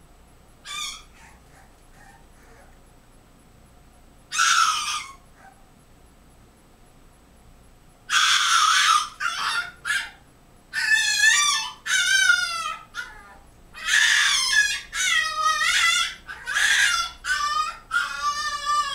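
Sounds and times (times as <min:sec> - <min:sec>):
puppy screaming and crying: 0:00.6 - 0:02.8, 0:04.3 - 0:05.6, 0:08.1 - 0:18.9.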